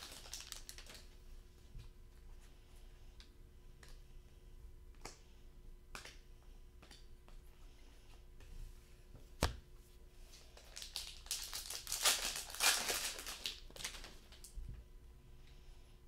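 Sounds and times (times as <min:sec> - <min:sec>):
foil wrapper tearing and crinkling: 0:00.0 - 0:01.0, 0:10.6 - 0:14.4.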